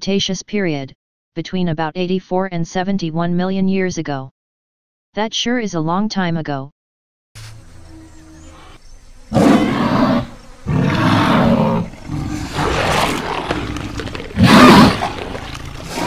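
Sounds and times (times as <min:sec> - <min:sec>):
dinosaur roars: 0:07.8 - 0:16.0.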